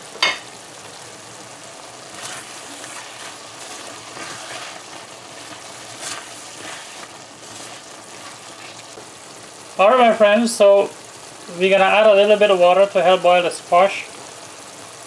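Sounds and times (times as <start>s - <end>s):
curry sizzling in a pot: 0.0s - 15.0s
spatula scraping a pot: 2.1s - 9.0s.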